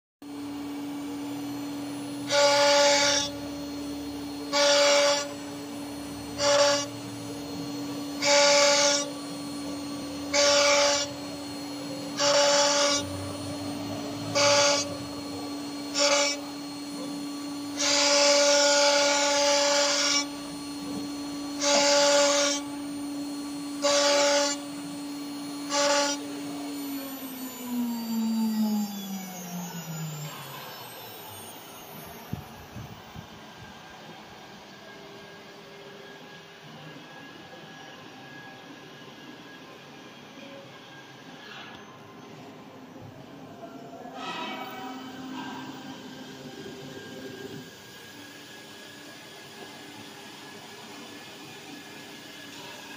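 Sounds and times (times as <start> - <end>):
router spindle whine: 0.2 - 52.9.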